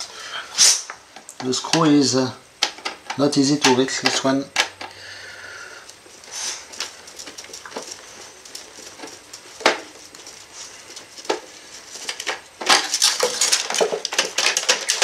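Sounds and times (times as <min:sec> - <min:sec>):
clicking and rattling: 0:06.7 - 0:15.0.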